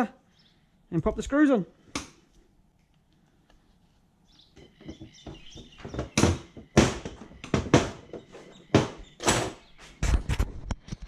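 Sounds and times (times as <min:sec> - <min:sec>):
tools knocking on workbench: 0:04.6 - 0:09.6.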